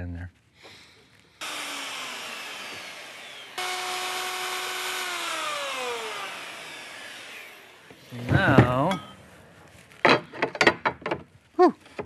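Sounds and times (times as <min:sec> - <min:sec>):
router motor whine: 0:01.4 - 0:08.2.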